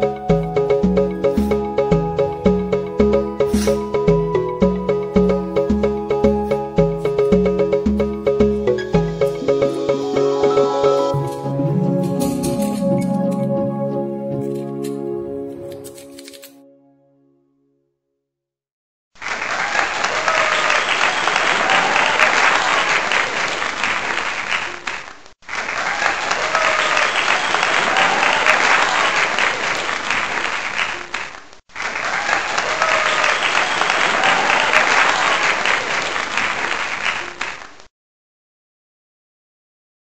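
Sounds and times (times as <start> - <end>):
crowd applause: 19.2 - 37.8
faint cheering: 19.5 - 23.6, 25.7 - 29.9, 31.9 - 36.4.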